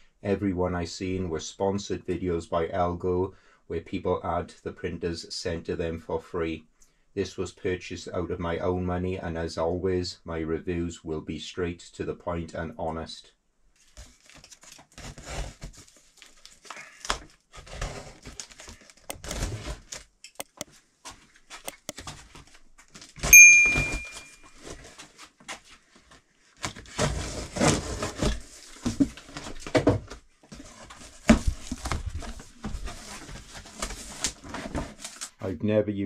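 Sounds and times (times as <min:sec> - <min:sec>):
cardboard box scraping and crinkling: 0:14.0 - 0:20.0, 0:24.5 - 0:35.3
bright bell-like ding: 0:23.3 - 0:24.4.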